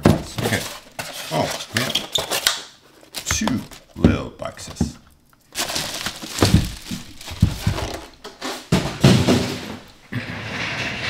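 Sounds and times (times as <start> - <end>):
plastic packaging crinkling: 5.4 - 8.2.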